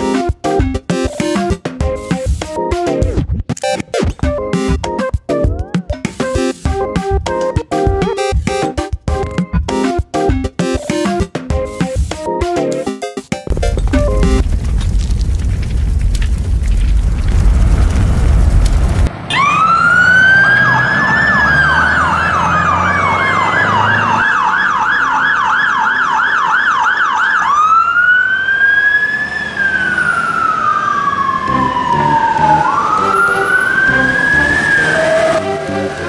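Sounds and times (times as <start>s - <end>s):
siren wailing and yelping: 5.4s - 6.0s, 19.3s - 36.0s.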